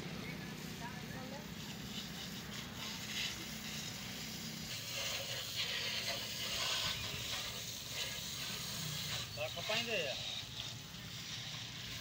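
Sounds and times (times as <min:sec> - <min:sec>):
low machine hum: 0:00.0 - 0:01.8
water spraying from hose: 0:00.0 - 0:12.0.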